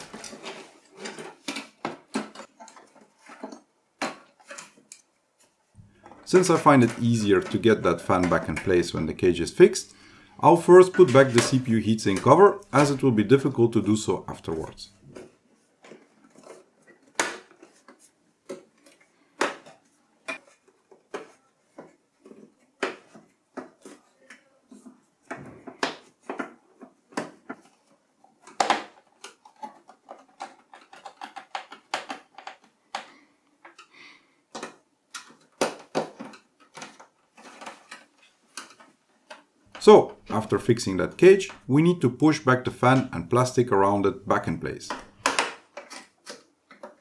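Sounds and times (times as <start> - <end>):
metal parts clicking and knocking: 28.5 - 33.9.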